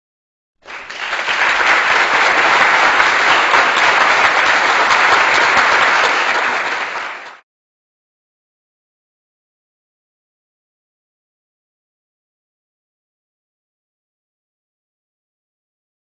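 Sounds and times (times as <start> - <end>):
crowd clapping: 0.6 - 7.4.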